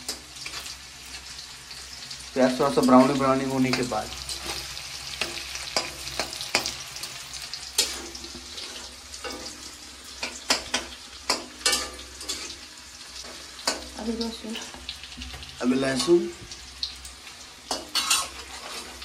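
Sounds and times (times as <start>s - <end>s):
onions sizzling in oil: 0.0s - 19.0s
spatula scraping a metal pan: 7.7s - 12.6s, 17.7s - 19.0s.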